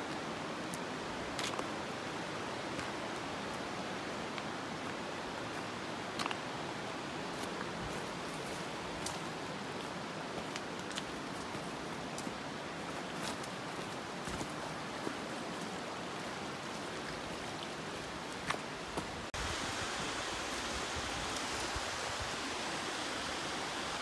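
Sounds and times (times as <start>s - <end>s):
creek water rushing over rocks: 0.0s - 24.0s.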